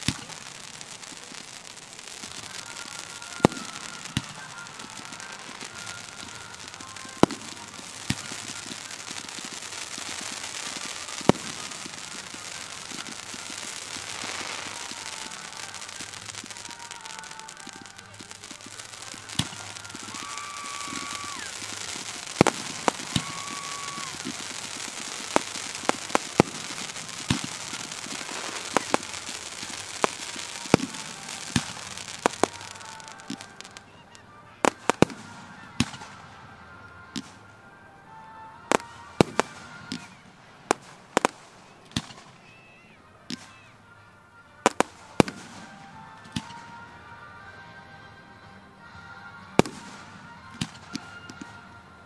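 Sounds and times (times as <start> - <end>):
rushing hiss: 0.0 - 33.8
fireworks bangs: 0.0 - 47.6, 48.8 - 52.0
whistle-like tones: 0.0 - 47.6, 48.8 - 52.0.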